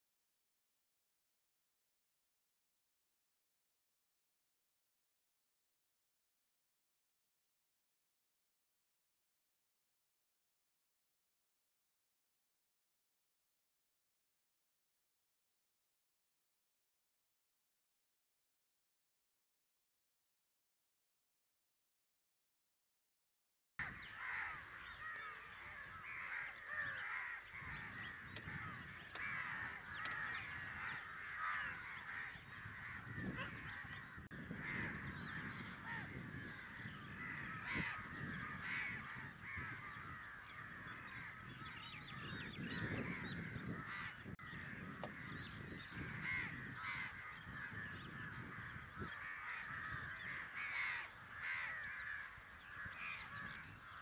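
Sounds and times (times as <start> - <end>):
crows cawing: 23.8 - 54.0.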